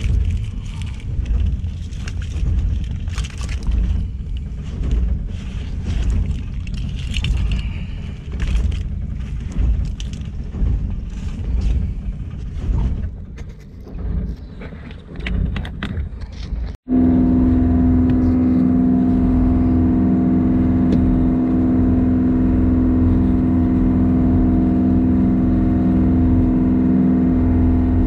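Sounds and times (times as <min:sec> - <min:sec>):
shells and debris rattling: 0:00.0 - 0:16.8
low boat rumble: 0:00.0 - 0:28.0.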